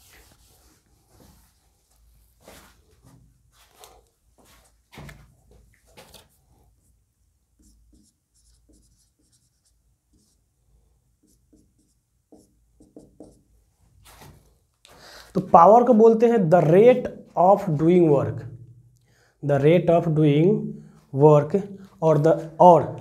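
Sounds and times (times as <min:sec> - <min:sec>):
marker writing on whiteboard: 0:07.5 - 0:10.5, 0:11.2 - 0:13.5.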